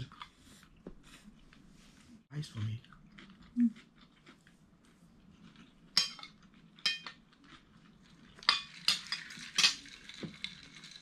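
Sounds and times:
cutlery clinking on a plate: 0:06.0 - 0:07.2, 0:08.4 - 0:10.0.

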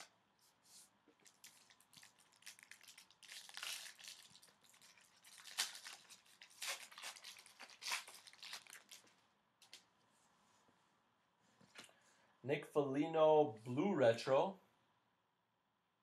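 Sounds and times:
foil wrapper tearing and crinkling: 0:01.2 - 0:09.8.

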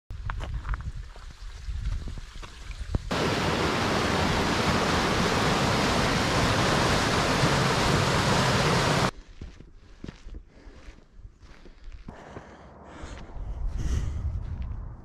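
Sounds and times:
waterfall rushing over rocks: 0:03.1 - 0:09.1.

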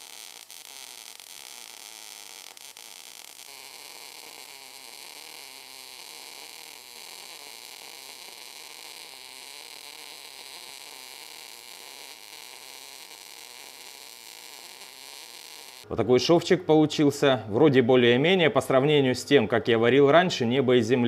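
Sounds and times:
welding arc hissing: 0:00.0 - 0:15.9.

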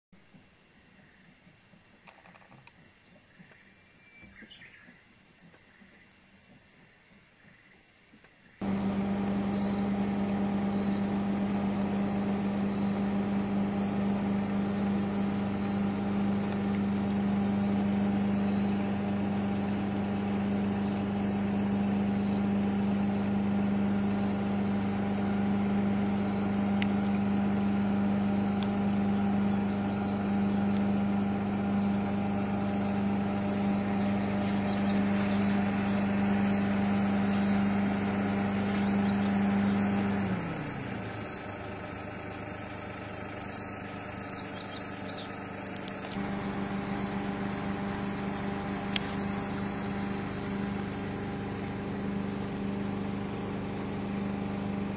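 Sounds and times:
motor hum winding down: 0:08.6 - 0:54.9
faint high chirp: 0:43.4 - 0:46.3.

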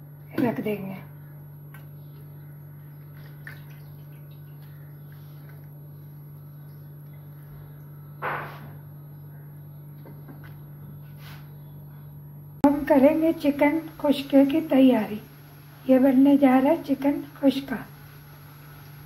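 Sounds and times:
steady low hum: 0:00.0 - 0:19.0
water dripping: 0:03.0 - 0:05.8.

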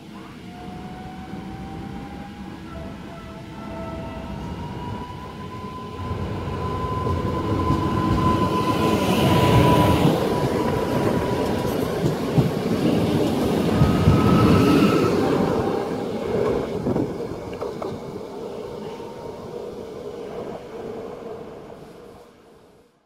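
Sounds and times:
train wheels rumbling on rails: 0:00.1 - 0:22.4.

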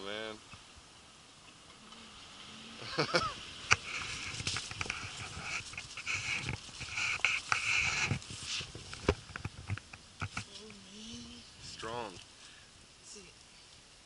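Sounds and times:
dry brush rustling and crackling: 0:01.4 - 0:13.9
hiss: 0:01.9 - 0:08.8.

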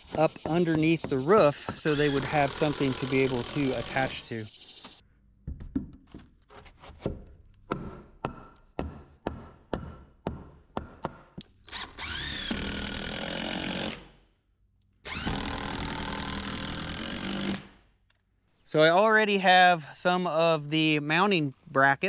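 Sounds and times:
power drill running: 0:01.7 - 0:04.3, 0:11.7 - 0:14.0, 0:15.1 - 0:17.6.

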